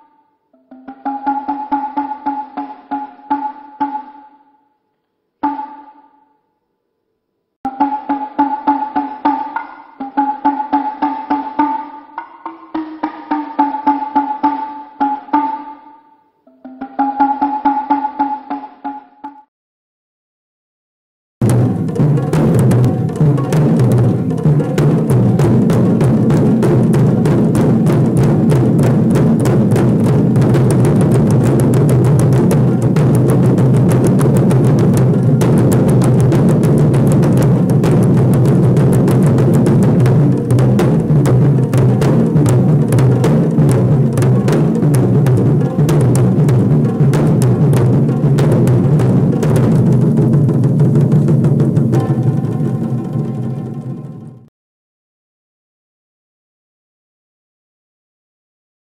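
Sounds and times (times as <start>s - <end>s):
deep drums struck fast: 21.4s - 53.8s.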